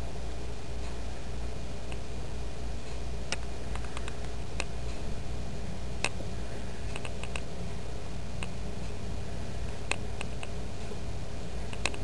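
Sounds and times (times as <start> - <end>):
low hum and hiss: 0.0 - 12.0
light clicks: 11.7 - 12.0.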